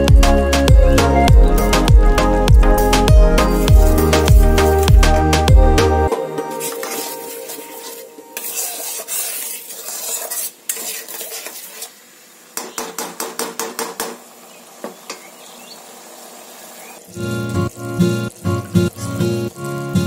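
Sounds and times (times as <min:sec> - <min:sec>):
low sizzle: 0:00.0 - 0:12.6, 0:14.2 - 0:20.0
spatula scraping a pan: 0:03.4 - 0:05.0, 0:06.4 - 0:12.1.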